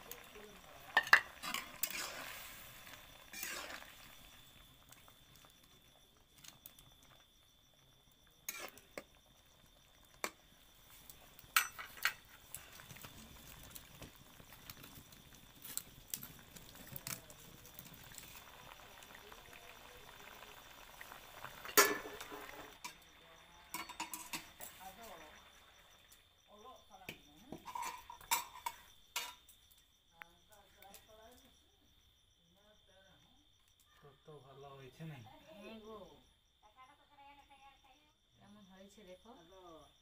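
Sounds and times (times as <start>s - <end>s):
curry simmering: 0.0s - 26.4s, 27.5s - 29.4s
metal spatula clinking on wok: 23.7s - 24.5s.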